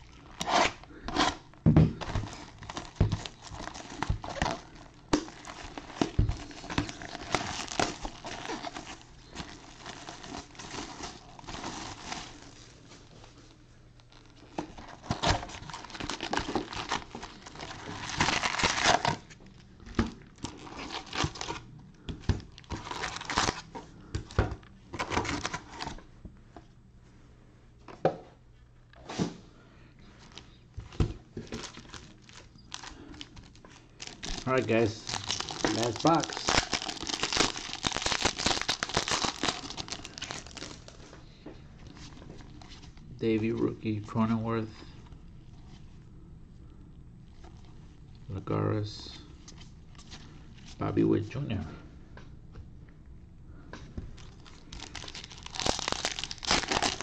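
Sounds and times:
foil packs handled: 0:00.0 - 0:24.4, 0:30.2 - 0:41.2, 0:54.2 - 0:57.0
plastic wrap crinkling and tearing: 0:00.0 - 0:24.4, 0:31.4 - 0:41.1, 0:54.2 - 0:57.0.

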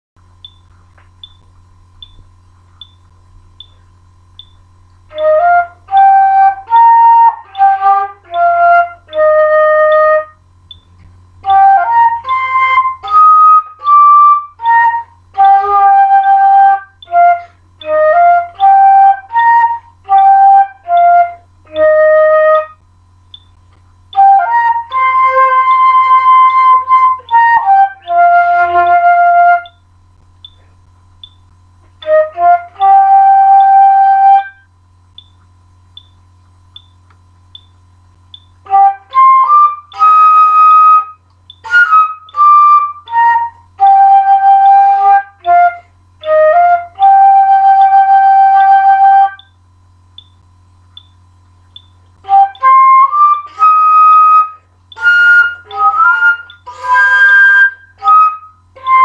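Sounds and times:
low steady hum: 0:00.2 - 0:59.0
solo flute melody: 0:05.1 - 0:10.4, 0:11.4 - 0:22.8, 0:24.1 - 0:29.9, 0:32.0 - 0:34.7, 0:38.6 - 0:49.5, 0:52.2 - 0:59.0
faint ticks: 0:35.1 - 0:38.5.

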